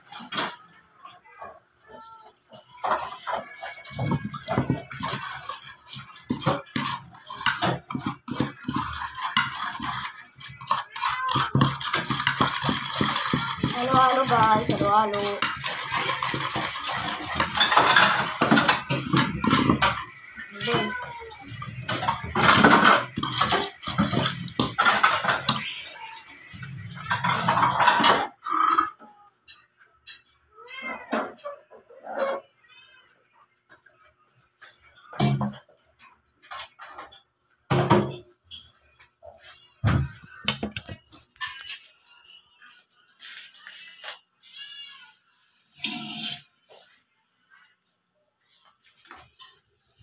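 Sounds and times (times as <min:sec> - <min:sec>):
fork scraping a ceramic plate: 0:02.8 - 0:20.1, 0:21.8 - 0:26.0, 0:45.8 - 0:46.5.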